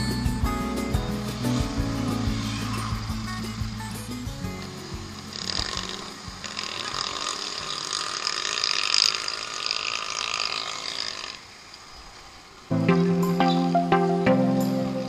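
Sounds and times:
street traffic hiss: 0:00.0 - 0:15.0.

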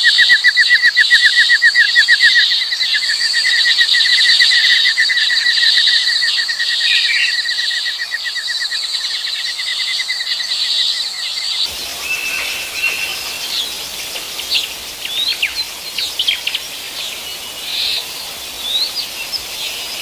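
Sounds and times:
steady insect buzz: 0:11.6 - 0:20.0.

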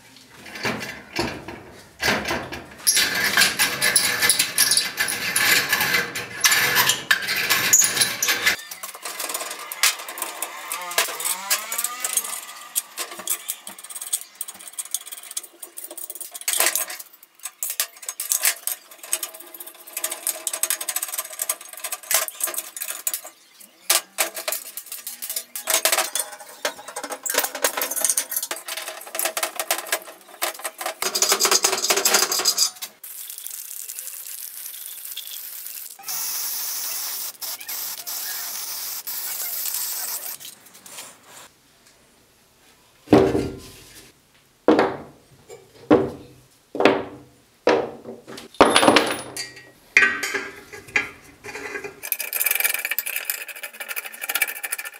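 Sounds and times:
small metal parts clinking: 0:02.8 - 0:40.6, 0:48.5 - 0:54.9
steady hiss: 0:33.0 - 0:43.0.

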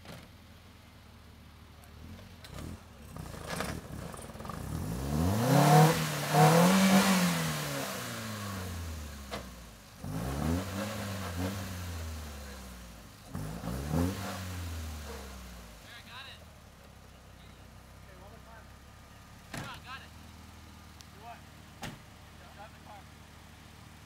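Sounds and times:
car engine revving: 0:01.9 - 0:16.7.

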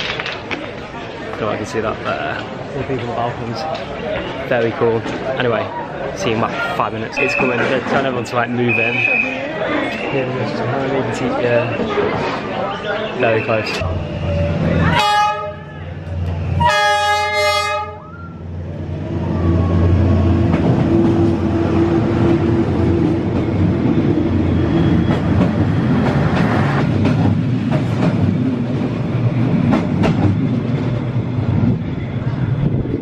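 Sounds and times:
train rumbling past: 0:00.4 - 0:33.0
train horn blast: 0:14.8 - 0:15.7, 0:16.6 - 0:18.1.

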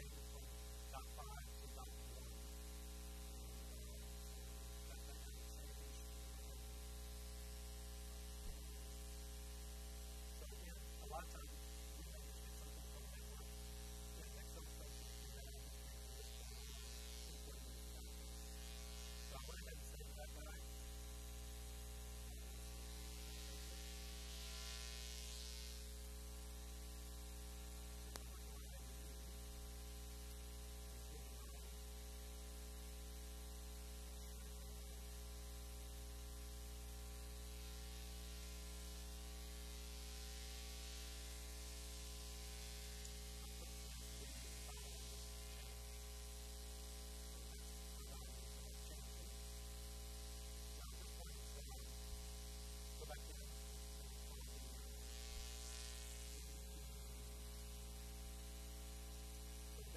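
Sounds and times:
electrical mains hum: 0:00.0 - 0:59.9
faint click: 0:28.1 - 0:28.7.

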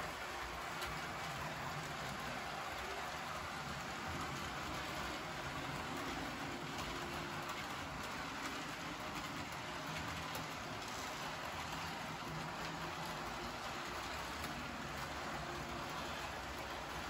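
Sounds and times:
model train wheels rumbling on rails: 0:00.0 - 0:17.0.

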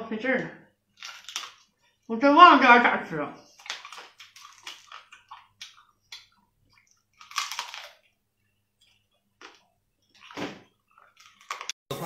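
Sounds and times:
crab shell cracking: 0:00.9 - 0:01.7, 0:03.5 - 0:06.4, 0:07.0 - 0:08.1
crunching and sucking while eating: 0:00.9 - 0:02.0, 0:03.4 - 0:11.8.

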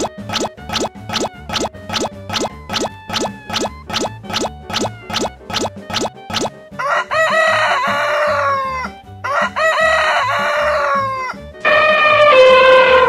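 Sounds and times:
background music with a beat: 0:00.0 - 0:06.9
rooster crowing: 0:06.8 - 0:13.0
horn-like tone sliding down: 0:11.6 - 0:13.0.

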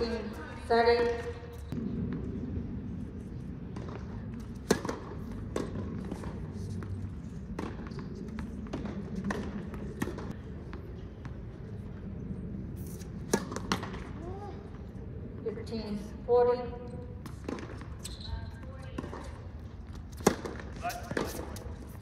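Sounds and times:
outdoor background noise: 0:00.0 - 0:22.0
tennis balls bouncing on court: 0:03.7 - 0:11.5, 0:12.9 - 0:14.2, 0:17.2 - 0:21.6.

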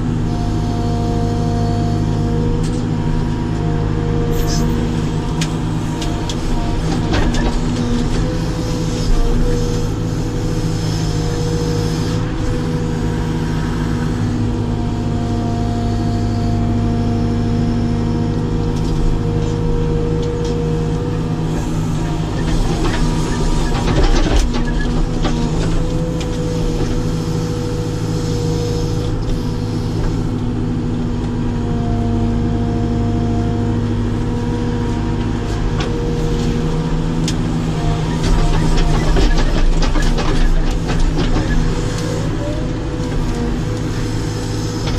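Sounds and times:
diesel engine running: 0:00.0 - 0:44.9
knocking and clatter: 0:38.2 - 0:41.7.

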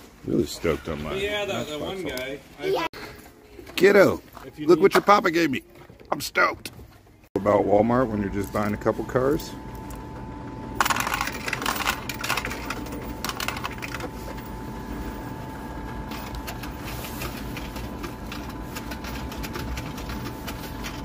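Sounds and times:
coins clattering through coin slot: 0:10.8 - 0:14.1.

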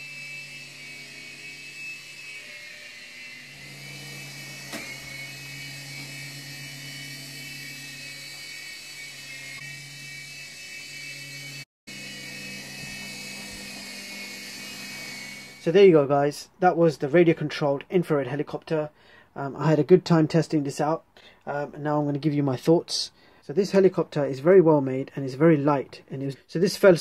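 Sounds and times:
toy helicopter rotor whine: 0:00.0 - 0:15.9.

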